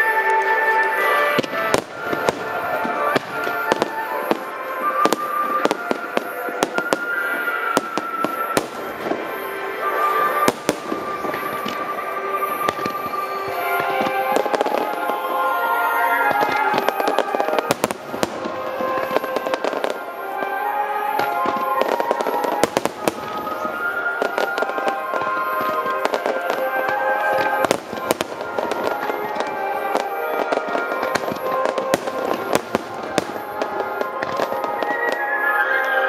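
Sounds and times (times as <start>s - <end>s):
fireworks bursting and crackling: 0.0s - 36.0s
music with held tones: 0.0s - 36.0s.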